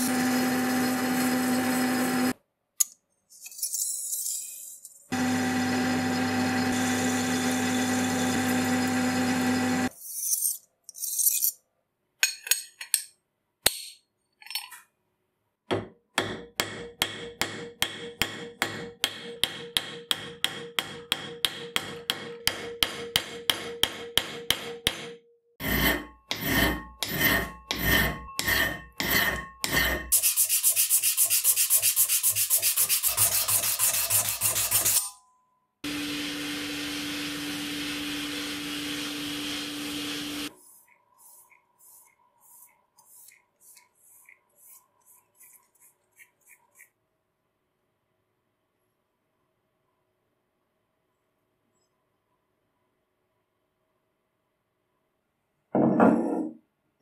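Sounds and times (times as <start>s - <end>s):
metal lathe humming: 0.0s - 2.3s, 5.2s - 9.9s
rubbing steel plate with pad: 25.6s - 35.0s.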